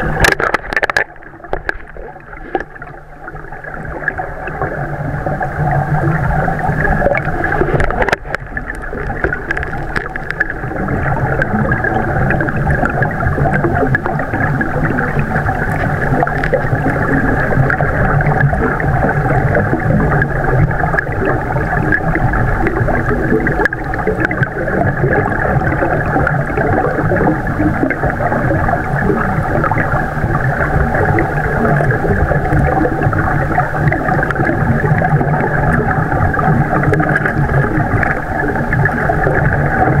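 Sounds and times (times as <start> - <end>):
muffled underwater rushing: 0.0 - 40.0.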